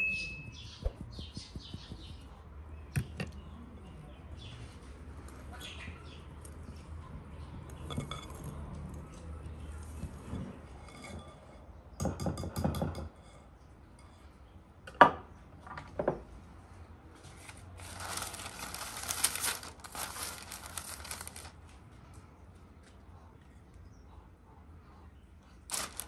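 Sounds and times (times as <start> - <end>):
parchment paper rustling: 17.3 - 21.7, 25.7 - 26.0.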